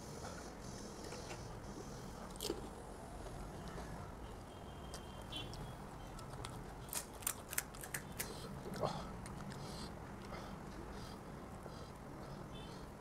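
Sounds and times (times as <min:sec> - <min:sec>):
chewing: 0:04.9 - 0:12.1
crisp shells cracking: 0:06.2 - 0:08.3.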